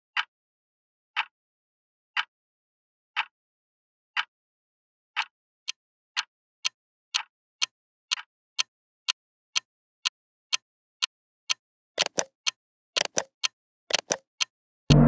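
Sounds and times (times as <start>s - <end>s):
clock-like timer ticks: 1.2s - 1.4s, 3.2s - 3.4s, 5.2s - 15.0s.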